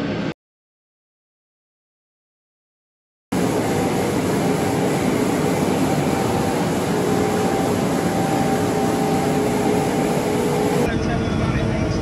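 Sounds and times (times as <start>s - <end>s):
combine harvester running: 3.3s - 11.9s.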